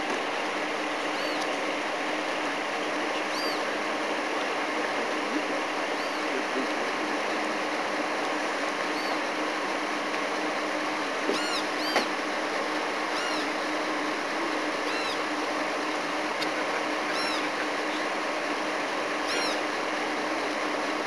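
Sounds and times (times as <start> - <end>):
high chirping animal calls: 3.3 - 3.7, 8.9 - 9.2, 13.1 - 13.5, 14.8 - 15.2, 17.0 - 17.7, 19.2 - 19.7.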